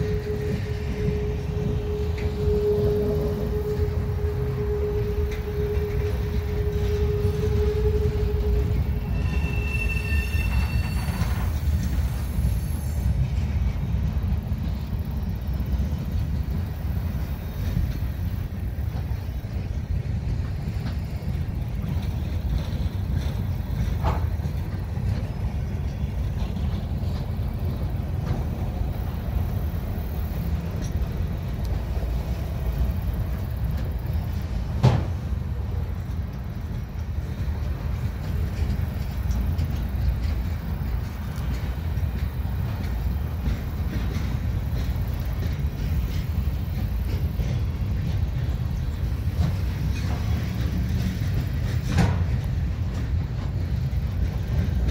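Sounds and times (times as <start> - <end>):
wheel squeal: 0.0 - 12.9
wheels rumbling on rail: 0.0 - 54.9.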